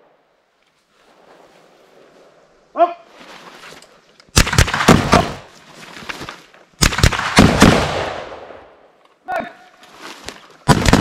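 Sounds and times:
rifle shots: 0:04.3 - 0:05.5, 0:06.8 - 0:08.7, 0:10.6 - 0:11.0
gunshot echo: 0:04.4 - 0:05.5, 0:06.8 - 0:08.8, 0:10.7 - 0:11.0.

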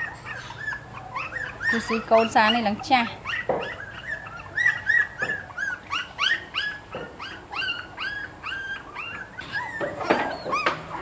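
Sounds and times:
puppies whimpering and squeaking: 0:00.0 - 0:11.0.

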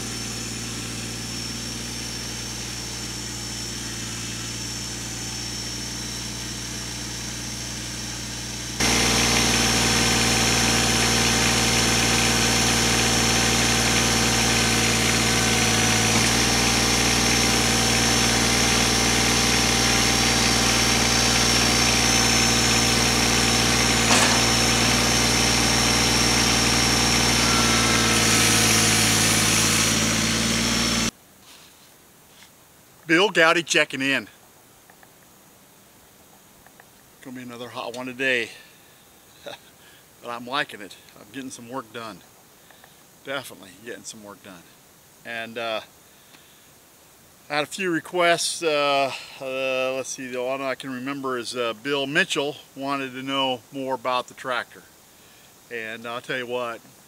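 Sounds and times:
tractor diesel engine running: 0:00.0 - 0:31.1.

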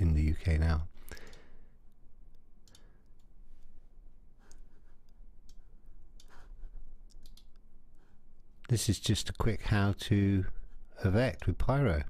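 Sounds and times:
faint low hum: 0:00.0 - 0:12.0
computer mouse clicking: 0:01.2 - 0:03.7, 0:04.4 - 0:07.7.

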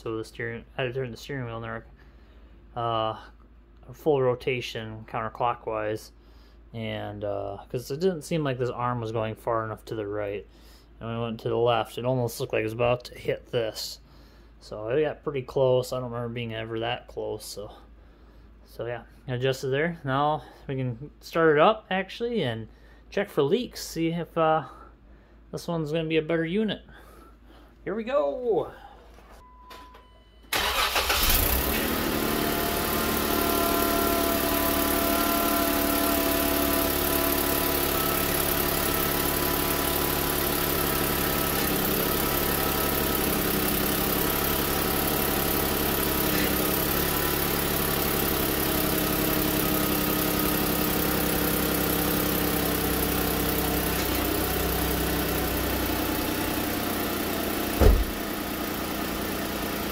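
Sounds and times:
car engine starting and idling: 0:30.5 - 0:59.9
sharp knock: 0:57.8 - 0:58.2.

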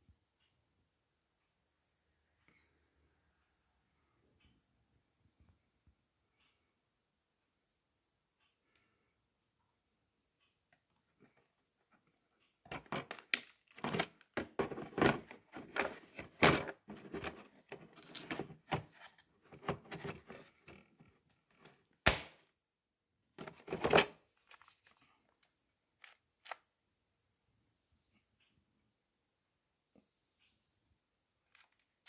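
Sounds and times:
tool rattling in plastic case: 0:12.7 - 0:21.8, 0:23.4 - 0:24.7.

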